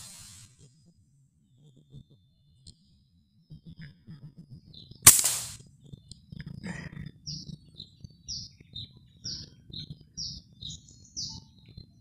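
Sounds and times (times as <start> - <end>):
air rifle shot: 5.1 - 5.6.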